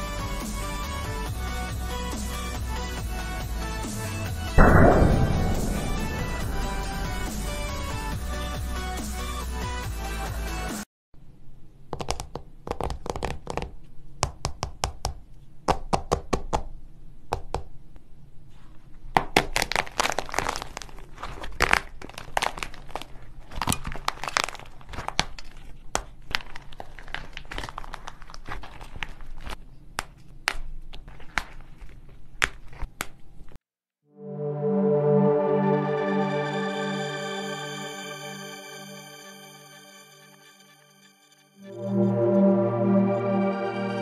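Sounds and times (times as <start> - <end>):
hard shell cracking and crunching: 19.3 - 32.9.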